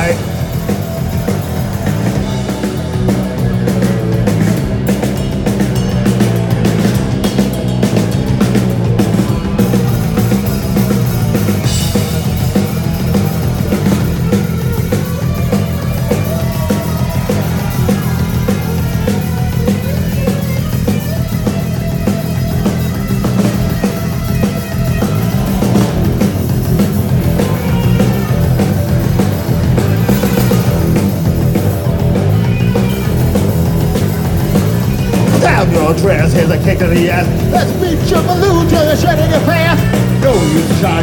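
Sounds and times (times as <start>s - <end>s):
bass guitar: 0.0s - 41.0s
distorted electric guitar: 0.0s - 41.0s
drum kit: 0.0s - 41.0s.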